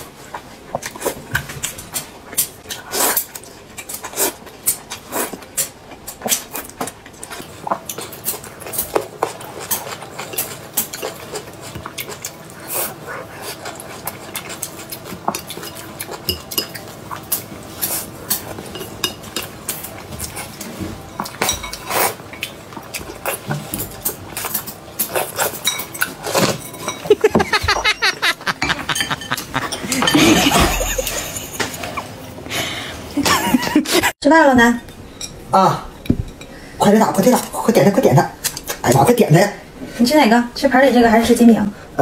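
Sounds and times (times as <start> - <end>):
noodles slurped and chewed: 2.6 - 18.6.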